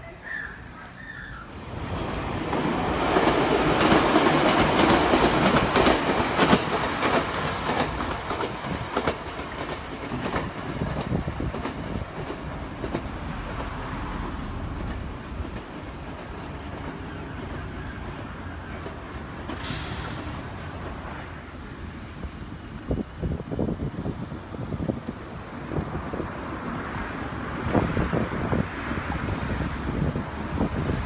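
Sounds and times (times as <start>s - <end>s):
electric train passing: 0.0s - 31.0s
wheel clicks over rail joints: 3.2s - 13.8s.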